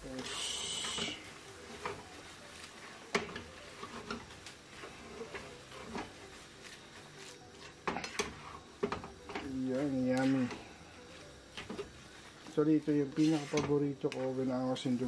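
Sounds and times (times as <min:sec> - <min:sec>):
spatula scraping a wok: 0:00.2 - 0:09.4, 0:13.1 - 0:13.8.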